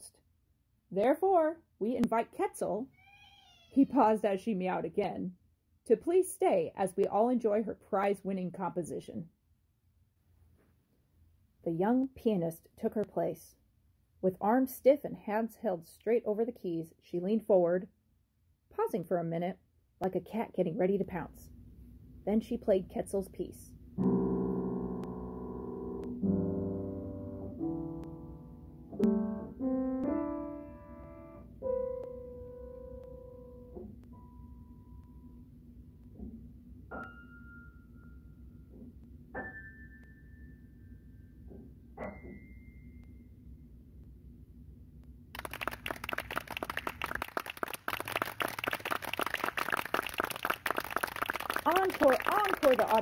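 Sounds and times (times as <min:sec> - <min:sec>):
faint low hum: 0:20.1 - 0:39.3
piano chords: 0:24.0 - 0:35.4, 0:36.9 - 0:43.1
crowd applauding: 0:45.4 - 0:53.0.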